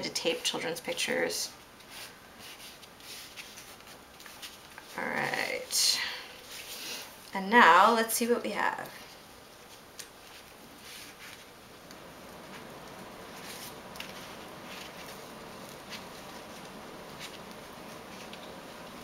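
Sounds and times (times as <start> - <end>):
paper rustling: 1.8 - 5.1, 9.5 - 19.0
sticky paper peeling ticks: 9.5 - 19.0.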